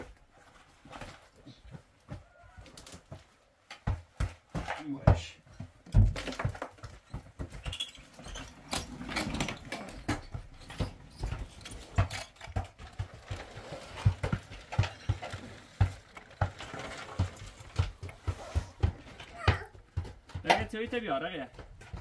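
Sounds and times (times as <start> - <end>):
irregular knocks and thumps: 0.8 - 22.0
rustling: 7.6 - 19.4.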